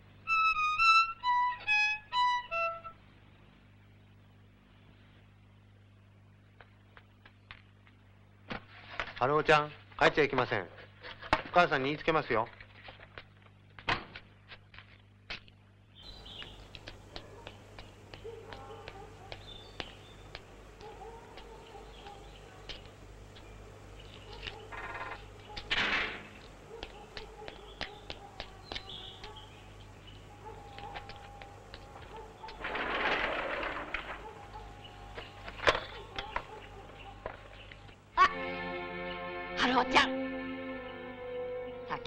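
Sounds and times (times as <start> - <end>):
birds chirping and calling: 16.0 - 38.2
light ticks and taps: 16.2 - 24.7, 26.4 - 30.0, 30.6 - 32.6
short rattle: 32.5 - 34.5.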